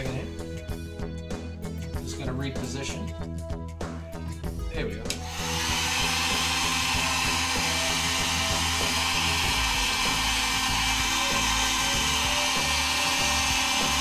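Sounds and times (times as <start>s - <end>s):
background music: 0.0s - 14.0s
heat gun blowing air: 5.2s - 14.0s.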